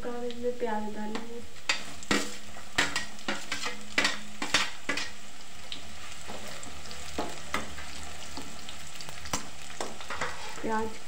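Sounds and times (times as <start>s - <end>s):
onion and garlic sizzling in oil: 0.0s - 11.0s
utensil clicking against pan: 1.7s - 5.1s.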